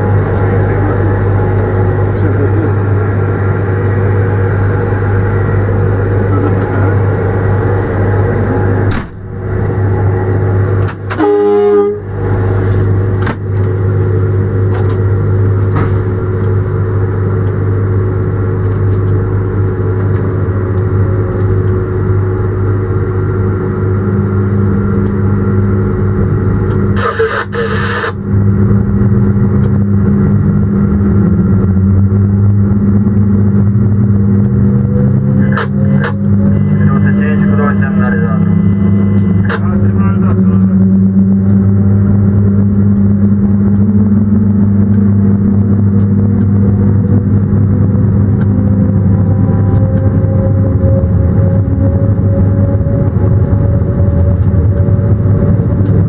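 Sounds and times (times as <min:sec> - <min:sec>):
locomotive engine rumble: 0:00.0 - 0:56.0
rising whine: 0:00.0 - 0:56.0
train horn blast: 0:11.1 - 0:13.1.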